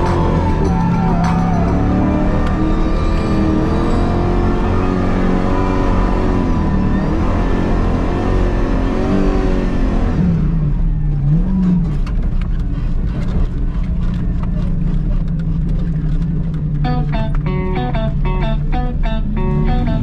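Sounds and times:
truck engine revving: 0.0 - 13.1
guitar music: 16.8 - 20.0.

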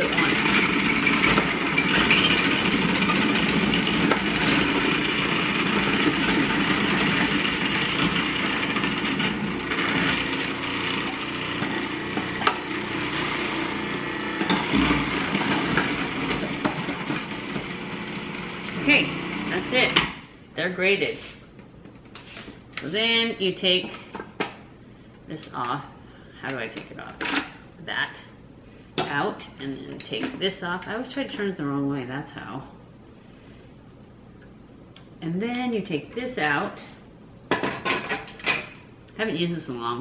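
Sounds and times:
food processor motor running: 0.0 - 20.0.

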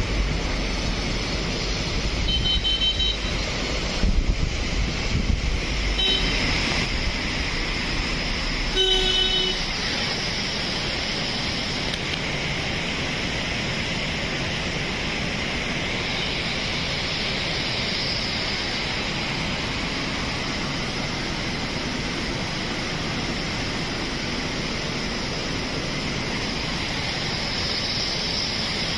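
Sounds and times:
river water rushing: 0.0 - 28.9
vehicle horn: 2.3 - 3.4, 6.0 - 6.4, 8.7 - 9.7.

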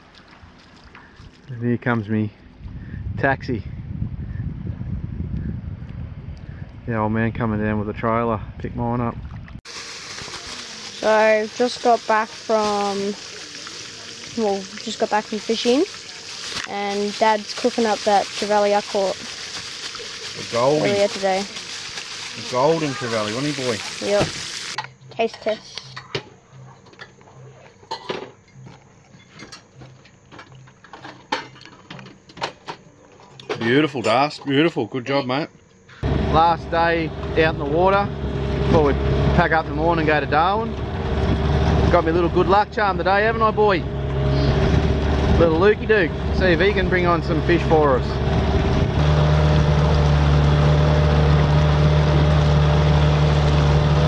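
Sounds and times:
hiss of wind and water: 9.7 - 24.8
outboard motor droning: 9.8 - 24.8, 36.0 - 54.0.

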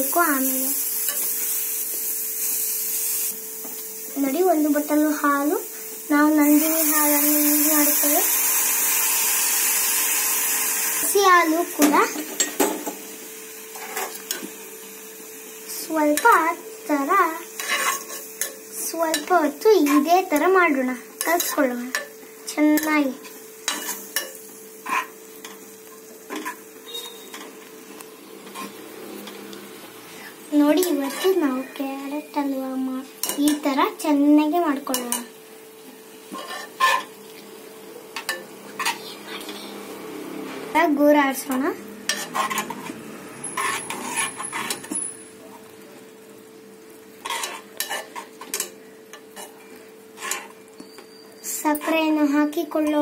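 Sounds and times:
metal spoons scraping a metal pan: 17.6 - 19.3, 23.7 - 25.6, 30.8 - 31.8, 36.3 - 37.1, 42.1 - 45.2, 47.2 - 48.8, 50.2 - 52.0.

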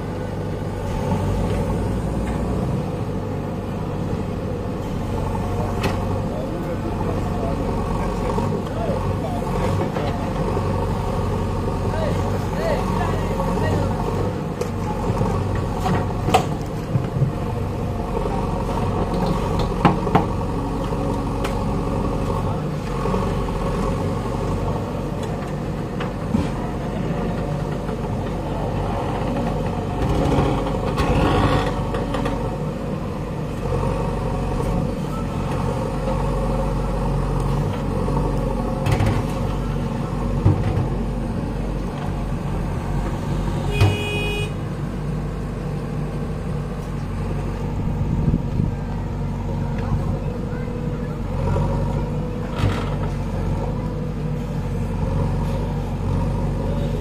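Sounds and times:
diesel engine under heavy load: 0.0 - 57.0.

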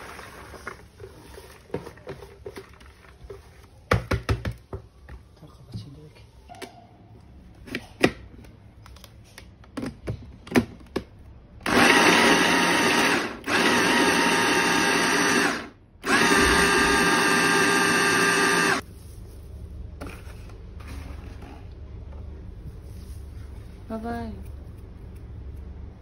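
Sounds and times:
hand blender motor whining: 11.7 - 18.8.

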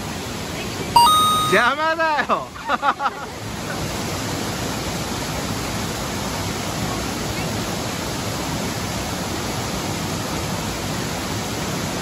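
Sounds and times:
waterfall rushing: 3.3 - 12.0.

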